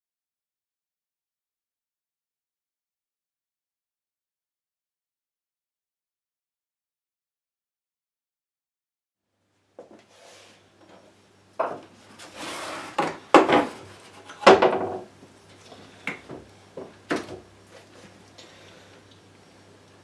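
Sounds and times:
tools knocking on wooden workbench: 11.6 - 11.9, 13.0 - 13.8, 14.4 - 15.1.

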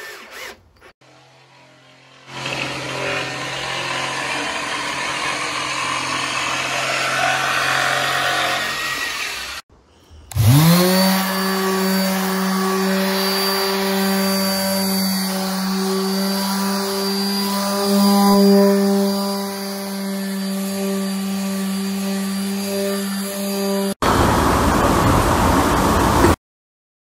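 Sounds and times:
detail sander whining: 0.0 - 9.6, 10.3 - 24.7
power tool running: 0.0 - 9.7, 10.3 - 24.6.

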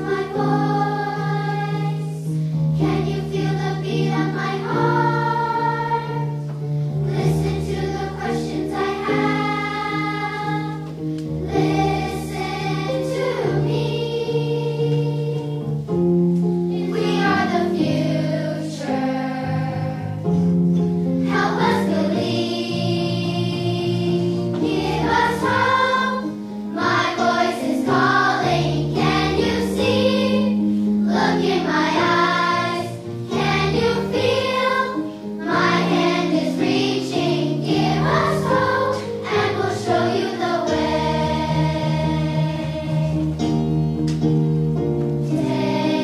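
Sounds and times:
children's choir singing: 0.0 - 15.9, 16.7 - 20.4, 21.1 - 43.7, 45.2 - 46.0.

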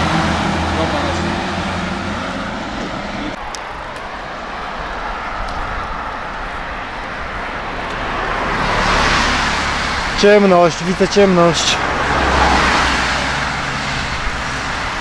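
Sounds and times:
tyres and air rushing: 0.0 - 15.0
vehicle engine hum: 0.0 - 15.0.

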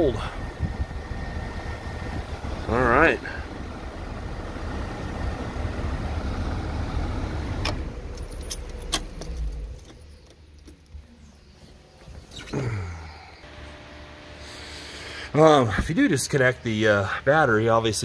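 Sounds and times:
air blower rushing: 0.0 - 9.7, 13.4 - 16.1
car engine running: 0.0 - 11.2.

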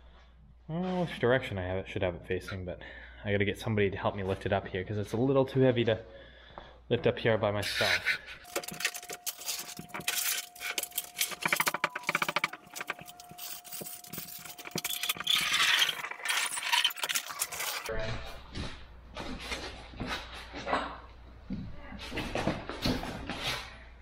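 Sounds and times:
dolly casters rattling: 8.4 - 17.9
thin steady whine: 8.4 - 17.9.

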